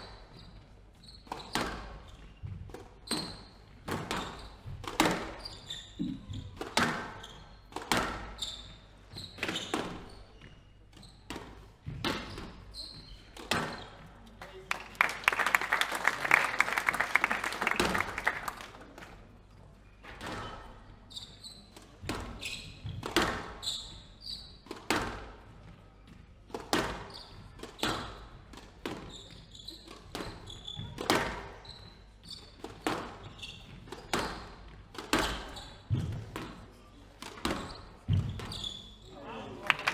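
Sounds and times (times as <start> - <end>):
shoes squeaking on wooden floor: 0.0 - 14.3, 20.2 - 25.0, 27.0 - 28.1, 28.8 - 36.5, 37.4 - 39.4
applause: 14.4 - 19.0, 39.6 - 39.9.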